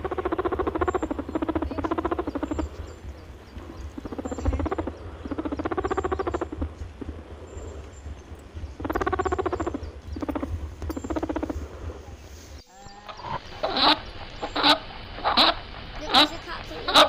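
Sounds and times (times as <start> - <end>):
animal rapid pulsing trill: 0.0 - 12.0
steady low hum: 0.0 - 17.0.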